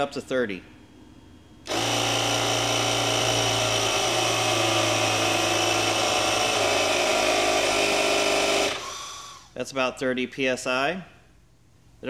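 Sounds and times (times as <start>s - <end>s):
air compressor running: 1.6s - 9.6s.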